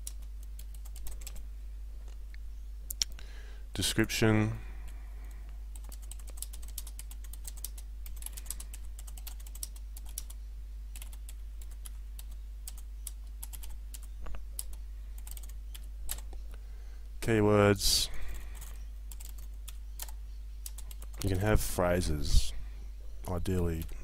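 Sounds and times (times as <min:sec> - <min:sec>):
typing on keyboard: 0:00.0 - 0:01.4, 0:05.7 - 0:10.4, 0:11.0 - 0:16.3, 0:18.6 - 0:21.4
steady low hum: 0:00.0 - 0:24.0.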